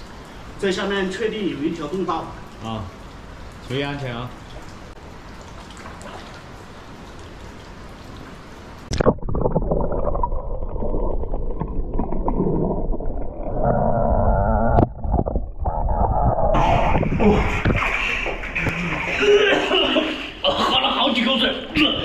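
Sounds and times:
faint hiss of water: 0.0 - 8.9
splash: 5.4 - 6.6, 16.6 - 20.4
underwater rumbling and bubbling: 8.8 - 19.2.

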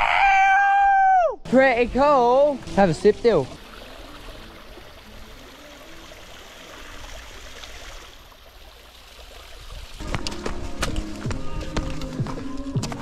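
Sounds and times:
water trickling over rock: 3.5 - 10.4.

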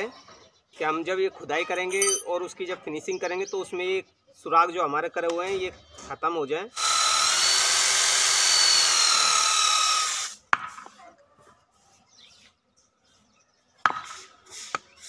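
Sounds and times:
faint handling noise: 1.8 - 2.3
electric drill boring into wood: 6.8 - 10.4.

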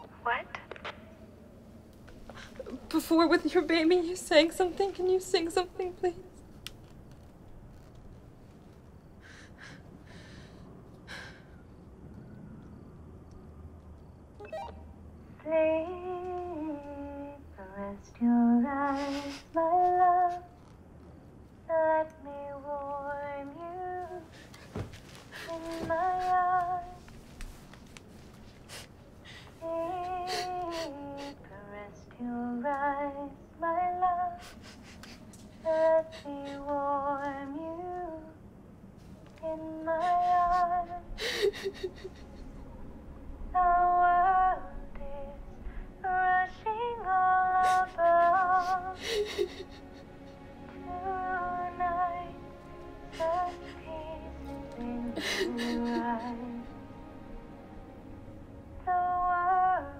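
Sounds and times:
woman humming a lullaby: 29.6 - 31.7, 39.5 - 42.4, 47.1 - 52.1, 53.0 - 56.8.

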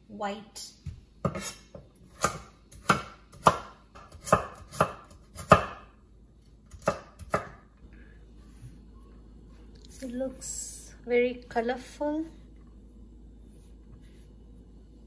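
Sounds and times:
knife chopping on wooden board: 1.2 - 5.9, 6.7 - 7.6.

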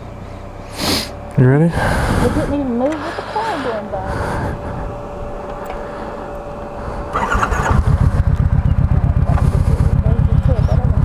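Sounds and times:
motorcycle engine running: 0.0 - 11.0
motorcycle engine starting: 0.0 - 11.0.

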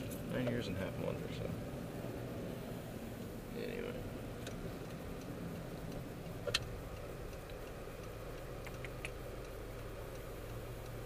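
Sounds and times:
car cabin hum while driving: 0.0 - 11.0
scattered clicks: 4.3 - 11.0.

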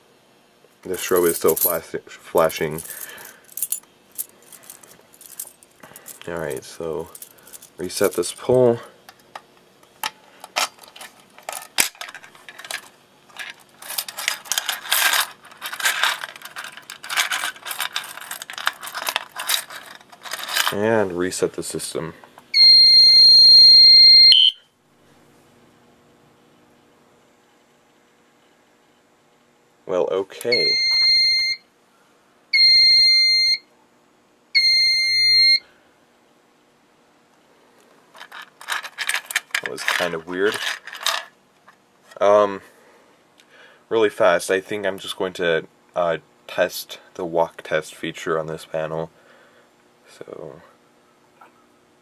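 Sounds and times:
keys jangling: 2.6 - 6.3, 10.6 - 20.8
alarm panel beeping: 22.6 - 24.6, 30.5 - 31.6, 32.6 - 33.6, 34.6 - 35.6.

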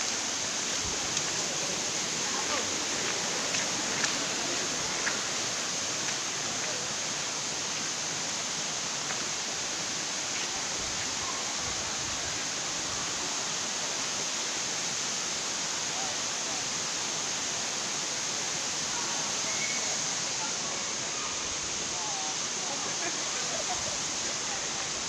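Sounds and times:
waterfall and stream rushing: 0.0 - 25.0.

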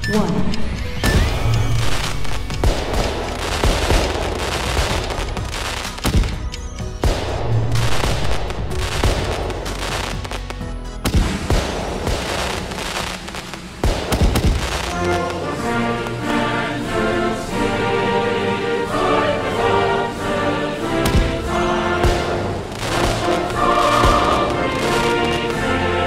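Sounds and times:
fireworks crackling: 1.0 - 18.2, 18.8 - 26.0
firework bangs: 1.1 - 16.5, 20.8 - 26.0.

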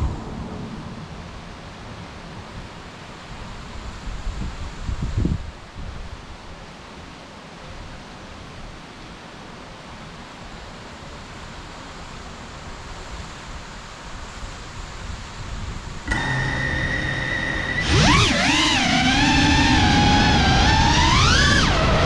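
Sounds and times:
wind on microphone: 0.0 - 2.8, 3.4 - 6.2.

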